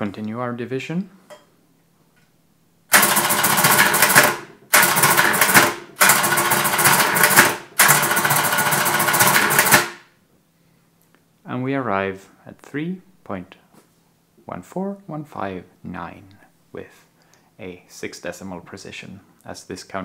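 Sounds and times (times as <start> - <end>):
mechanical calculator clattering: 2.9 - 10.0.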